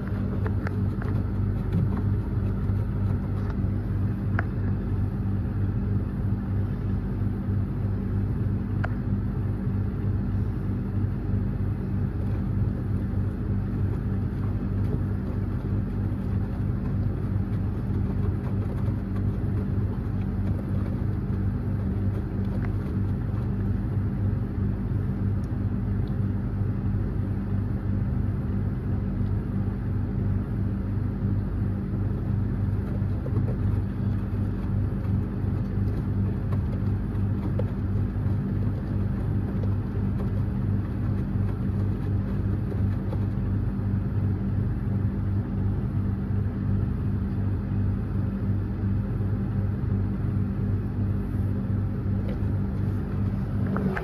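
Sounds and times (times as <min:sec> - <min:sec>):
washing machine hum: 0:00.0 - 0:54.0
washing machine drum tumbling: 0:11.8 - 0:24.7, 0:32.1 - 0:44.6.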